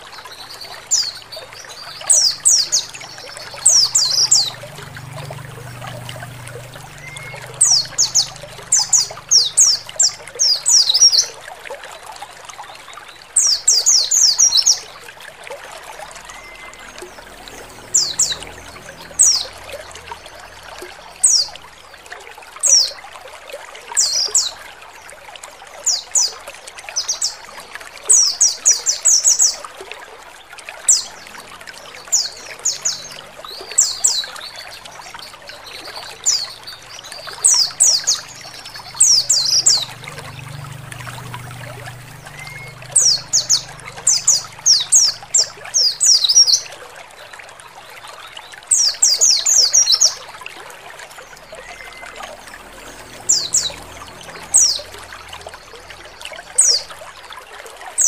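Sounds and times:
running water trickling: 0:00.0 - 0:58.0
bird chirping high notes: 0:01.8 - 0:11.0, 0:16.0 - 0:21.6, 0:37.1 - 0:46.6, 0:51.4 - 0:56.9.

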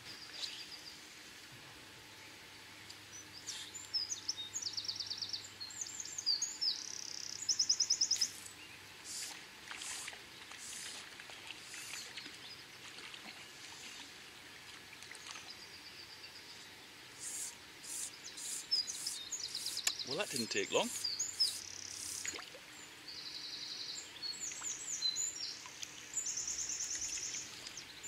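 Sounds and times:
songbirds trilling and chirping: 0:02.1 - 0:28.0
river water hissing: 0:08.0 - 0:15.6, 0:17.0 - 0:22.9, 0:24.3 - 0:28.0.

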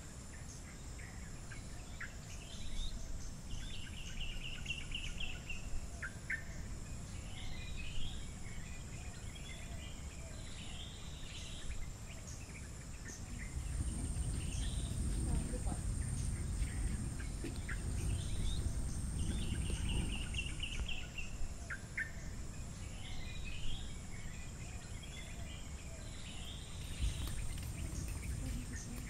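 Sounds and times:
birds chirping: 0:00.3 - 0:29.0
high-pitched insect drone: 0:13.1 - 0:25.2
low rumble: 0:13.2 - 0:21.7, 0:26.8 - 0:29.0.

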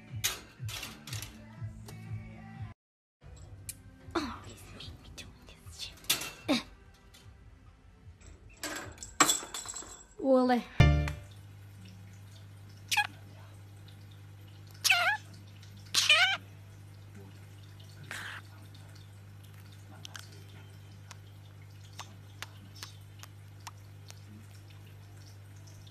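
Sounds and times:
budgie calling: 0:14.8 - 0:15.3, 0:15.9 - 0:16.4.

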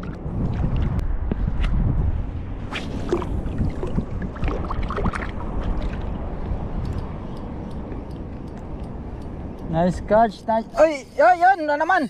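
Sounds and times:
low wind rumble: 0:00.0 - 0:12.0
sea water lapping and sloshing: 0:02.7 - 0:06.4
faint sharp ticks: 0:06.8 - 0:09.8.

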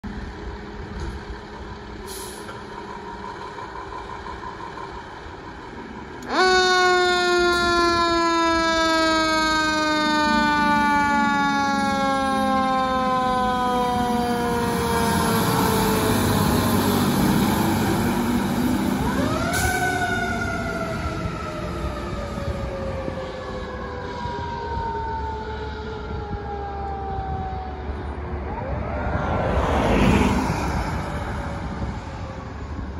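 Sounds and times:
diesel engine running: 0:00.0 - 0:06.4
truck engine rumble: 0:00.0 - 0:32.9
fire truck siren wailing: 0:01.7 - 0:32.9.

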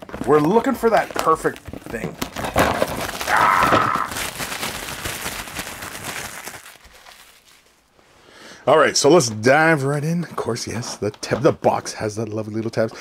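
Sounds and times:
shrink wrap tearing and crinkling: 0:00.0 - 0:07.9.

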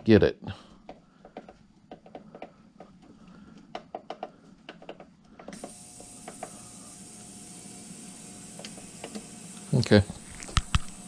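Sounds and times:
ultrasonic cleaner hissing: 0:05.5 - 0:11.0.

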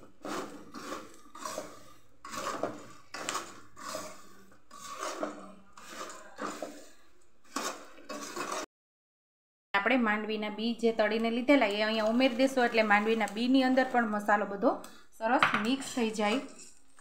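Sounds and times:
metal spoon stirring puffed rice: 0:00.0 - 0:08.6, 0:11.4 - 0:14.6.

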